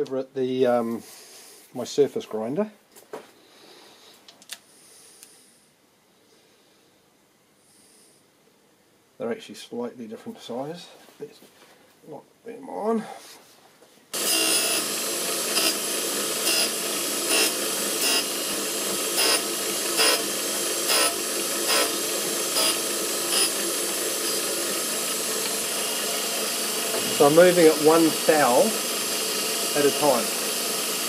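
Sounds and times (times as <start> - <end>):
grinding wheel scraping steel: 14.2 - 30.4
surface grinder running: 14.2 - 31.0.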